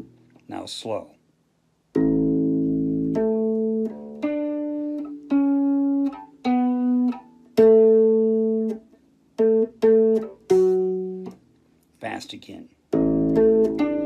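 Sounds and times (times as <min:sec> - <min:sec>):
electric bass guitar plucked notes: 0:02.0 - 0:11.4, 0:12.9 - 0:14.0.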